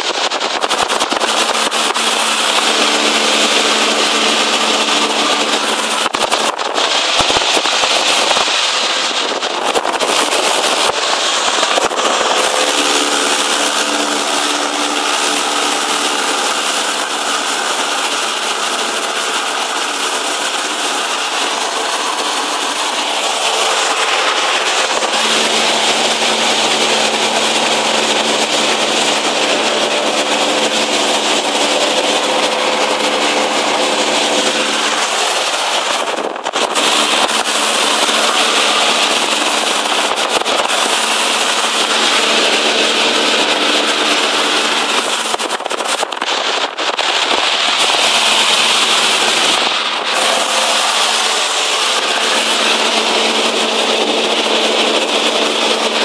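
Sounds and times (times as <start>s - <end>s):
aircraft engine and propeller: 0.0s - 56.0s
heavy airflow noise: 0.0s - 56.0s.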